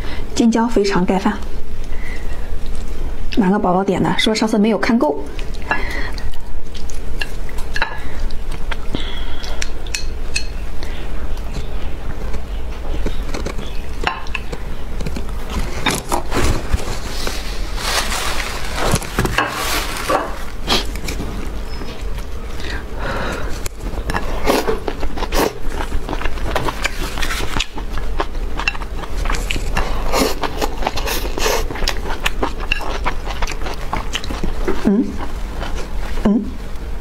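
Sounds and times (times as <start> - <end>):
low steady hum: 0.0 - 37.0
person chewing food: 5.3 - 36.8.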